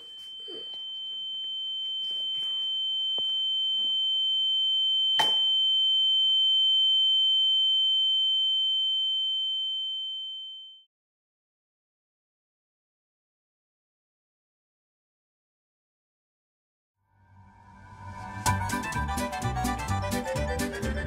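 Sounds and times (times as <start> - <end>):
sharp knock: 5.2 - 5.5.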